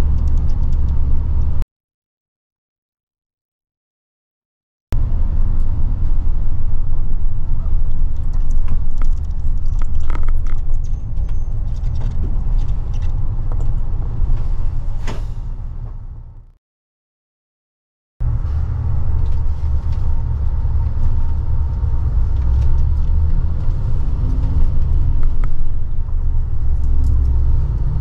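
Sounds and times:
light rattles and clicks: 7.8 - 14.7.

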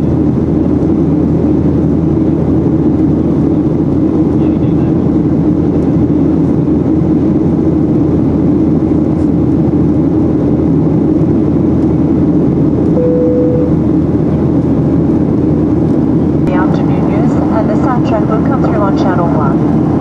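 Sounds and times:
jet engine and airflow drone: 0.0 - 20.0
short single tone: 12.9 - 14.0.

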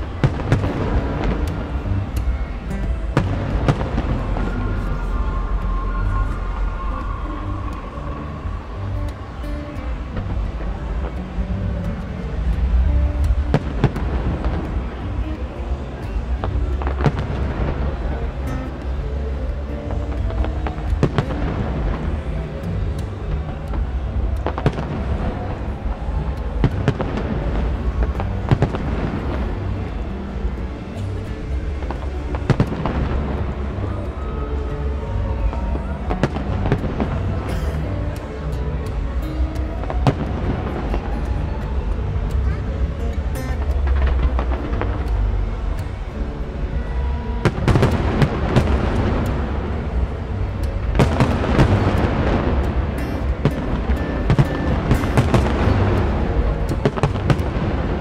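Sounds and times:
fireworks bursting: 0.0 - 39.1, 41.8 - 58.0
low rumble: 0.0 - 58.0
firework cracks: 47.4 - 58.0.

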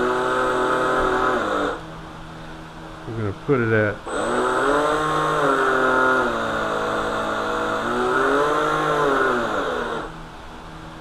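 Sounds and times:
electric motor whine: 0.0 - 1.8, 4.1 - 10.2.

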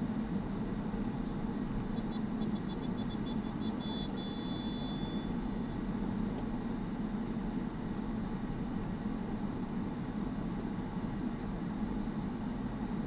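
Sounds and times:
car road and engine noise: 0.0 - 13.0.

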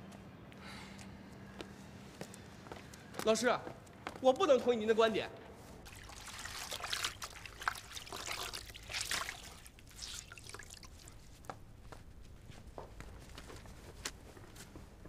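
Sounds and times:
water splashing and dripping: 5.8 - 11.5.

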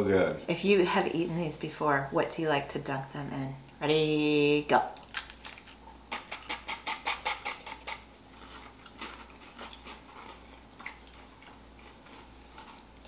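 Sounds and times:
biscuit crunches: 5.0 - 6.8
chewing: 5.0 - 13.0.

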